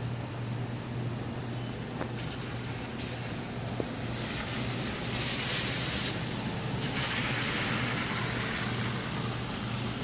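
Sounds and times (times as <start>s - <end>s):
constant low hum: 0.0s - 10.0s
hiss: 4.0s - 10.0s.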